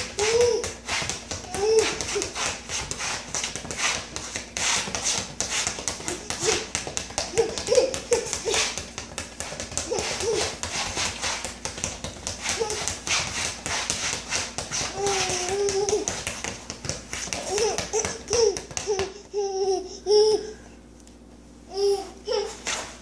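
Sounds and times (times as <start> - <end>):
ball bouncing on tile floor: 0.0 - 19.4
baby babbling: 0.2 - 0.8, 1.5 - 2.4, 7.3 - 8.8, 9.9 - 10.6, 14.9 - 16.2, 17.4 - 20.6, 21.7 - 22.7.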